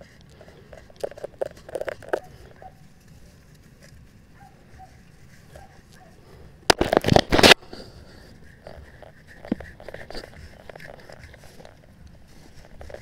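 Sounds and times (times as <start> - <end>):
dry grass and sticks rustling: 0.0 - 13.0.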